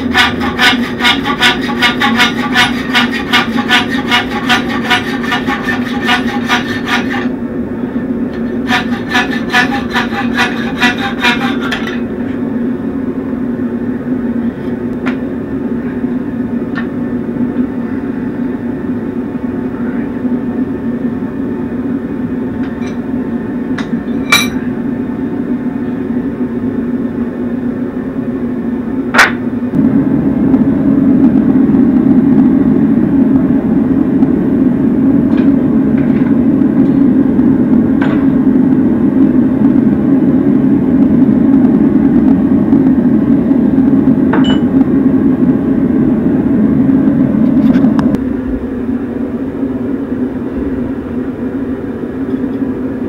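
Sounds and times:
hacksaw cutting steel: 0.0 - 7.3, 8.4 - 12.1
steady low hum: 0.0 - 53.0.

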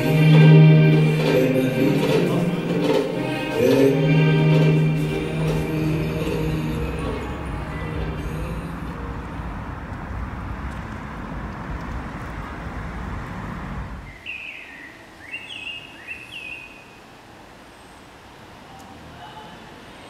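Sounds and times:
steady rumbling: 0.0 - 14.0.

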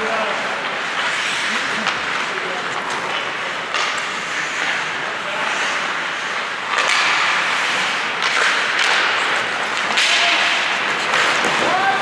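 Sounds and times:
skate blades scraping ice: 0.0 - 12.0.

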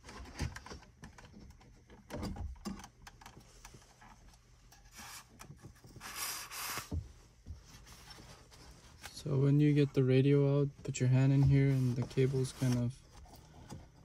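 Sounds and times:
plastic clicking and knocking on metal: 0.0 - 3.8.

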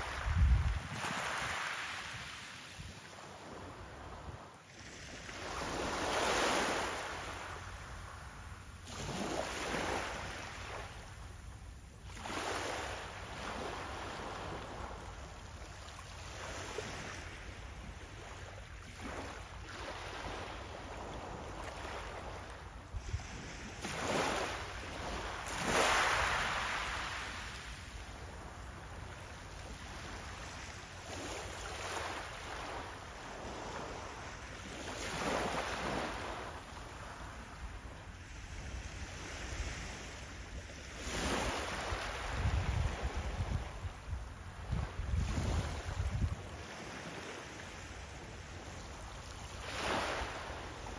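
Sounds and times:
wind rumble on microphone: 0.0 - 6.1, 16.3 - 25.8, 37.0 - 47.3
waves breaking on pebble beach: 25.1 - 27.5.

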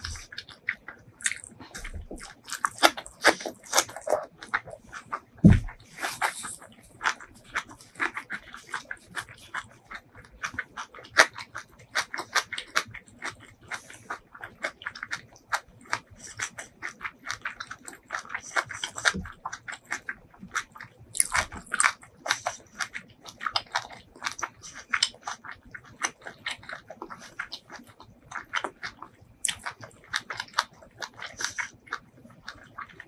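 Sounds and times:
person chewing food: 0.0 - 33.0.

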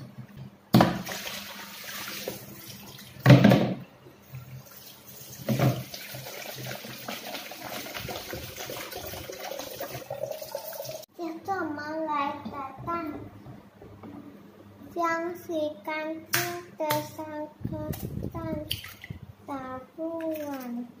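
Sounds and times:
water splashing in a sink: 0.8 - 3.6, 4.6 - 11.1, 18.6 - 19.3, 20.2 - 20.9.

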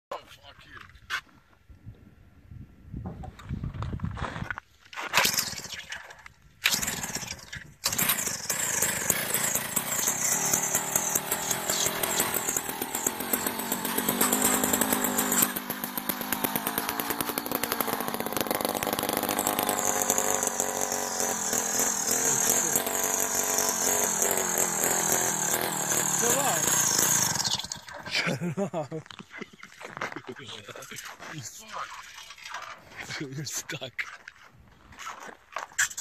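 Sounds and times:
pull-start cord pulls: 6.6 - 28.1
ice auger engine running: 6.7 - 28.5.

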